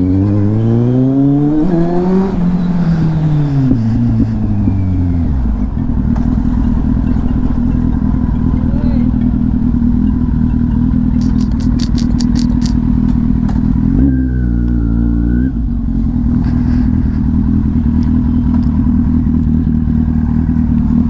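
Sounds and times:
motorcycle engine at low speed: 0.0s - 21.0s
sharp ticks: 6.6s - 13.6s.

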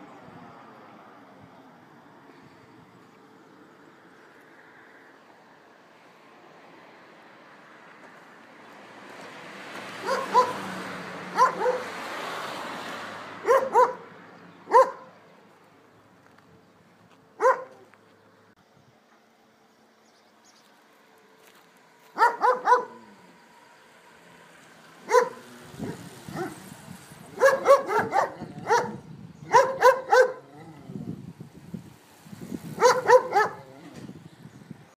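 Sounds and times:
dog barking: 10.0s - 10.7s, 11.3s - 12.0s, 13.4s - 14.1s, 14.7s - 15.2s, 17.4s - 17.9s, 22.2s - 23.1s, 25.0s - 26.6s, 27.4s - 30.5s, 32.8s - 33.8s.

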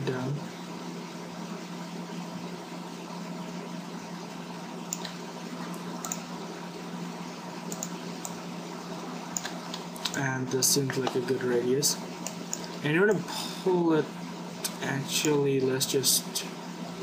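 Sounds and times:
low electrical hum: 0.0s - 17.0s
microphone hiss: 0.0s - 17.0s.

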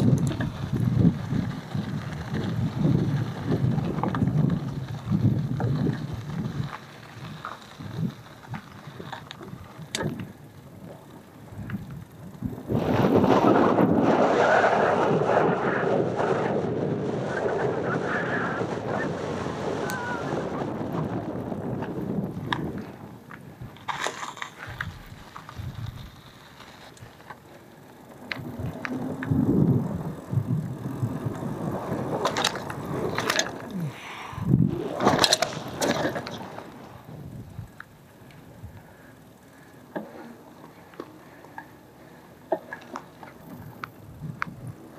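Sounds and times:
wind on the microphone: 0.0s - 8.6s, 11.5s - 23.8s, 24.6s - 26.2s, 28.3s - 37.8s, 43.4s - 44.9s
bike clicks and rattles: 0.0s - 17.6s, 19.7s - 44.9s
bike tyres rolling on dirt: 0.0s - 44.9s.

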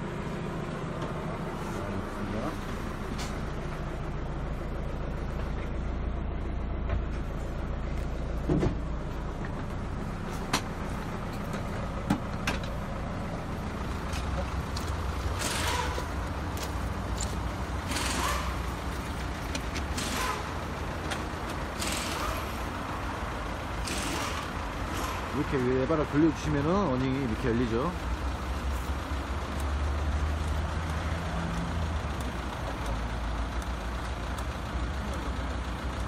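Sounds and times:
footsteps: 16.0s - 17.5s.

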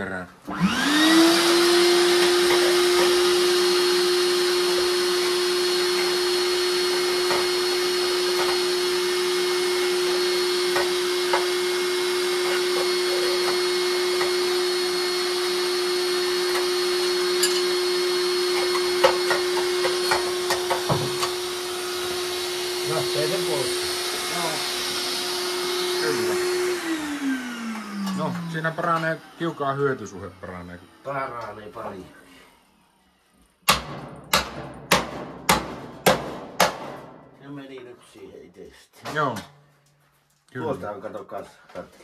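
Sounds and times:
vacuum cleaner motor whine: 0.5s - 33.4s.

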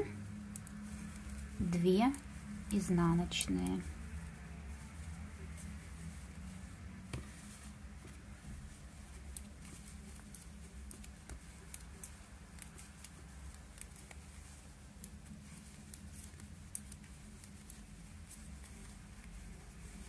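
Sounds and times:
metal knitting needles clicking: 0.0s - 4.0s, 9.2s - 15.2s, 15.8s - 18.4s
low steady hum: 0.0s - 20.0s.

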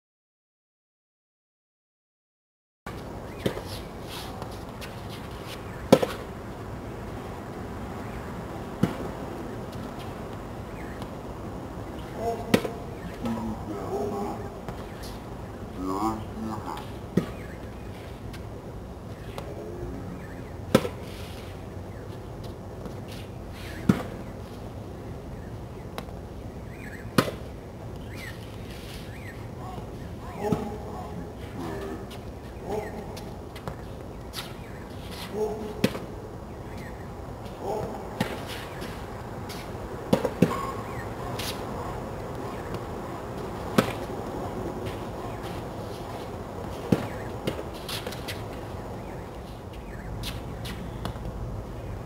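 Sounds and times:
steady background hiss: 2.9s - 52.0s
tennis racket hitting ball: 12.4s - 12.8s, 40.1s - 40.7s, 43.7s - 44.1s, 46.7s - 48.4s
tennis racket striking ball: 12.4s - 12.8s, 43.7s - 44.1s.

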